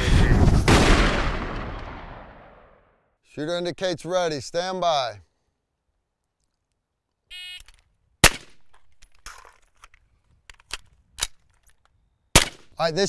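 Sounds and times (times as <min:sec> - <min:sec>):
rifle shot: 0:00.2 - 0:02.9, 0:08.2 - 0:08.6, 0:12.4 - 0:12.7
magazine clicks and knocks: 0:07.6 - 0:12.7.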